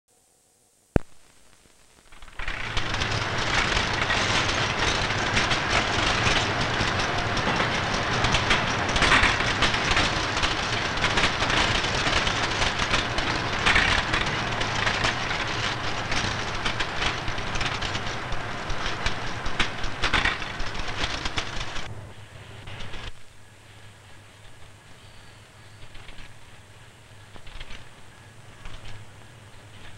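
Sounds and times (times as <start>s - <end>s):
typesetting machine clatter: 2.2s - 21.9s, 27.3s - 28.0s.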